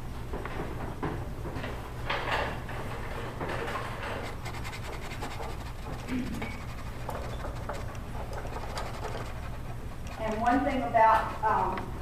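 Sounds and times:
paintbrush scratching on canvas: 4.0 - 11.7.

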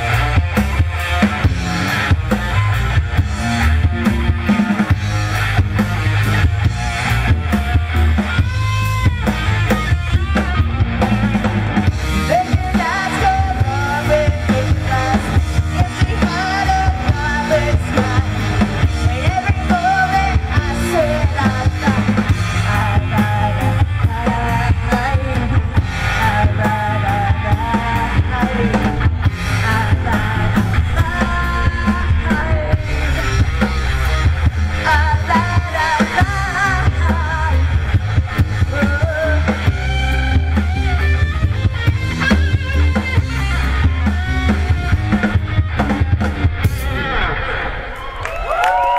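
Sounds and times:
drum kit: 0.0 - 48.9
electric guitar: 0.0 - 48.9
woman singing: 12.3 - 33.5, 34.8 - 37.8.

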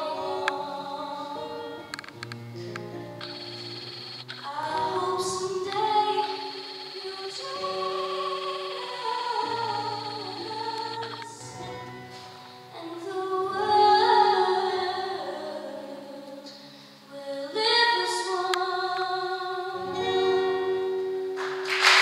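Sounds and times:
girl singing slow song: 0.0 - 2.0, 4.4 - 21.4
sustained accompaniment: 1.6 - 12.9
applause: 21.4 - 22.0.

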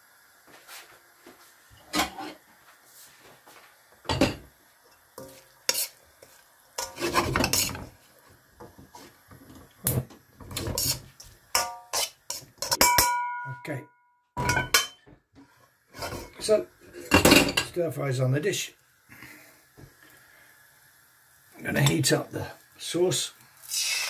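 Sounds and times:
metal spatula scraping a wok: 1.8 - 2.4, 5.2 - 8.2, 10.4 - 12.9, 14.4 - 17.3.

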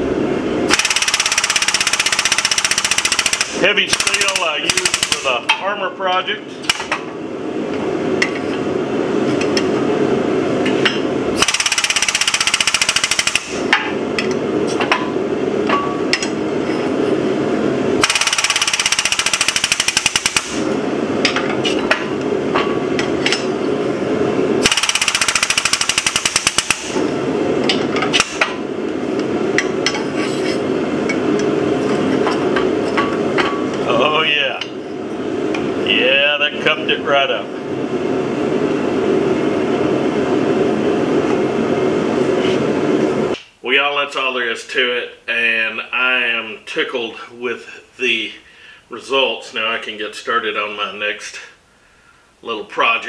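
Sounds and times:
workshop noise: 0.0 - 44.3
fast mechanical rattling: 0.7 - 5.3, 11.4 - 13.6, 18.0 - 20.6, 24.6 - 27.0.

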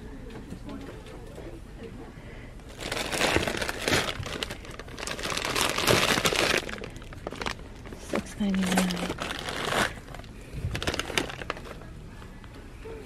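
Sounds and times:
plastic bag crinkling: 2.7 - 11.9.

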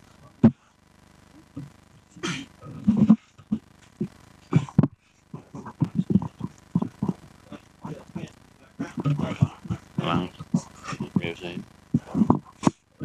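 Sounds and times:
breathy mouth noises: 1.4 - 12.9
low indistinct voices: 1.4 - 13.0.

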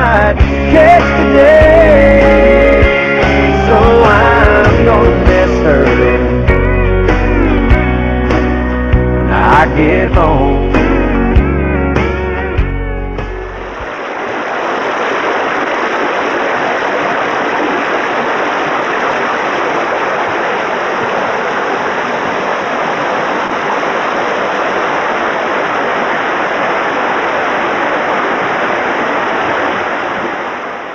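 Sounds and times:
creek rushing over rocks: 0.0 - 6.5, 13.5 - 30.9.

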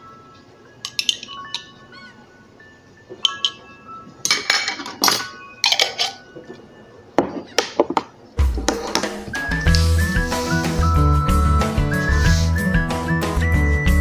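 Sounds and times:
light background music: 0.0 - 14.0
spoon clinking on ceramic bowl: 4.3 - 6.2.

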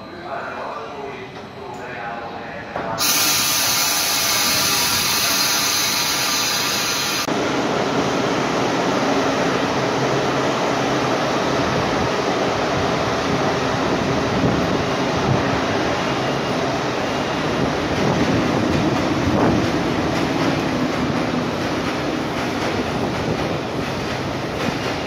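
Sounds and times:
train coaches passing on track: 0.0 - 25.0.

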